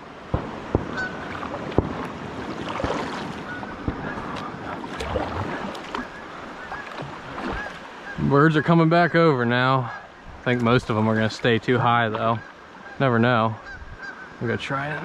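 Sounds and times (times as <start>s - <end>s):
water lapping against boat hull: 0.8s - 8.3s.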